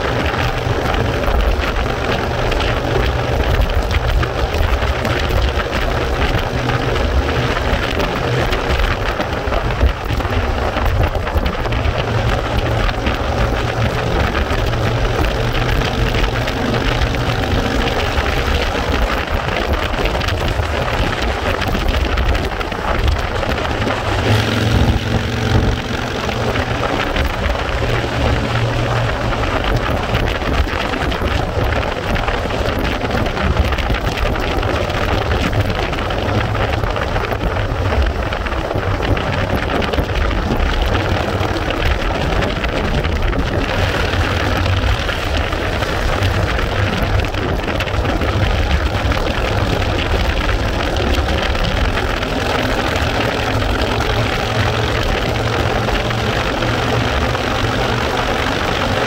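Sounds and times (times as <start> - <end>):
vehicle engine and road noise: 0.0 - 59.0
wind buffeting microphone: 0.0 - 59.0.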